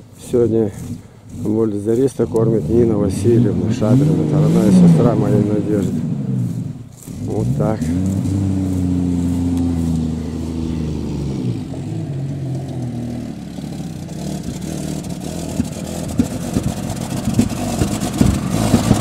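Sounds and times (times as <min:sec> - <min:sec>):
vehicle engine running: 0:00.0 - 0:19.0
vehicle knocks and rattles: 0:11.8 - 0:19.0.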